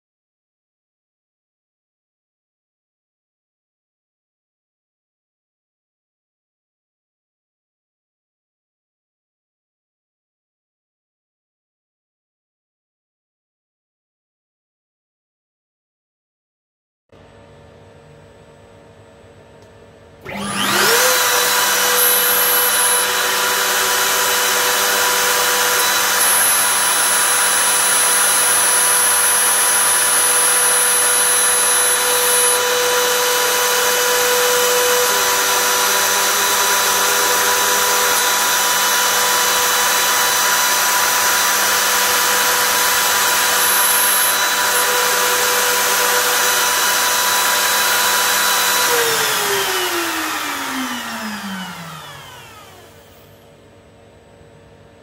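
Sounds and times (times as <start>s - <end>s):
metal cutting noise: 20.2s - 53.4s
router high whine: 20.2s - 54.8s.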